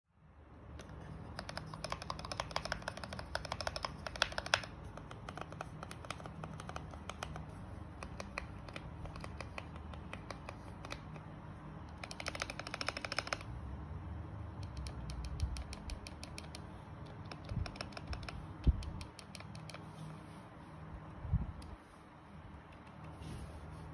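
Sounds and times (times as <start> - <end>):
mechanical keyboard key clicks: 0.8 - 13.5, 14.6 - 19.8.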